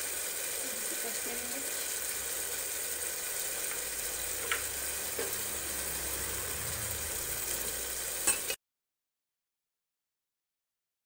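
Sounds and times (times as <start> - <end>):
food sizzling in oil: 0.0 - 8.6.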